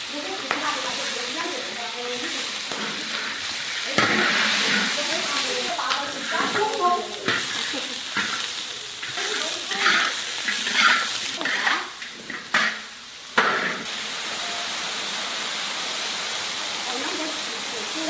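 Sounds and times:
boiling hiss and steam: 0.0s - 18.0s
meat sizzling: 0.0s - 18.0s
metal spatula scraping wok: 0.2s - 13.9s.

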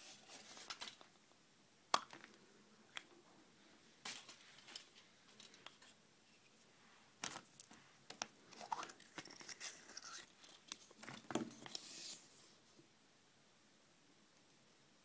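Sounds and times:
plastic capsule clicks: 1.9s - 3.1s
scratchy foil crinkling: 8.5s - 12.3s.

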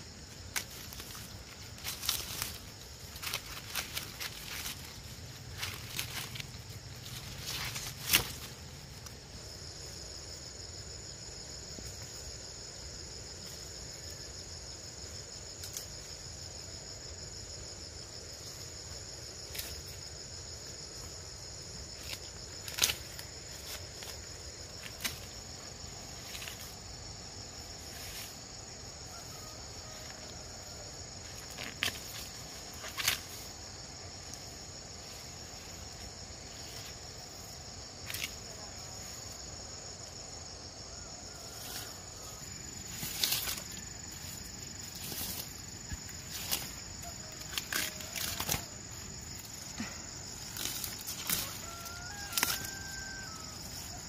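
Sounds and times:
high-pitched insect chorus: 0.0s - 54.0s
dry leaves snapping off stalks: 0.4s - 9.1s, 22.0s - 25.4s, 45.0s - 48.8s, 49.8s - 53.1s.

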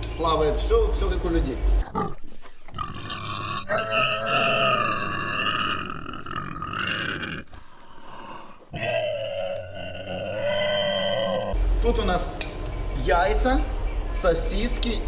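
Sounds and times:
piglets squealing: 1.8s - 7.7s, 8.4s - 11.6s.

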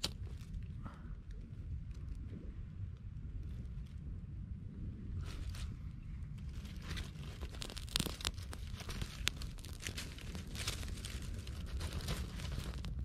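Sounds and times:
campfire crackling: 5.3s - 13.0s
sharp pops and snaps: 7.3s - 13.0s.

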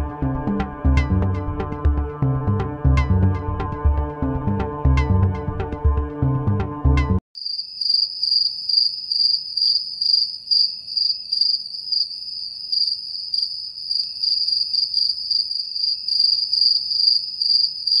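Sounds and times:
crickets chirping: 7.4s - 18.0s.

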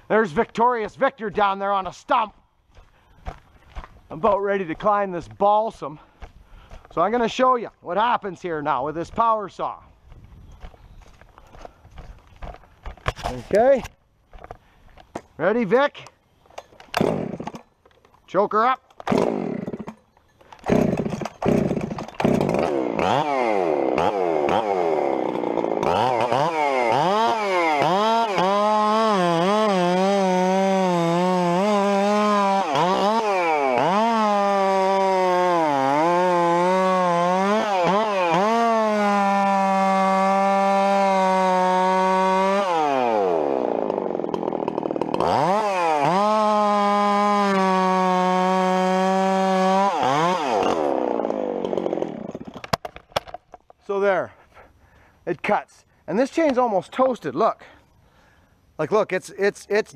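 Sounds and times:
chainsaw cutting log: 10.6s - 15.3s, 16.6s - 17.7s, 18.9s - 53.4s
chainsaw engine revving: 16.9s - 17.6s, 19.0s - 20.0s, 20.6s - 52.7s.

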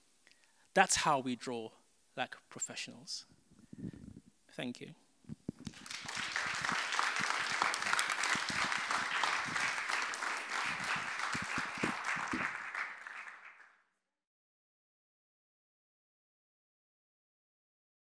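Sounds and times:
audience applauding: 5.7s - 13.8s.

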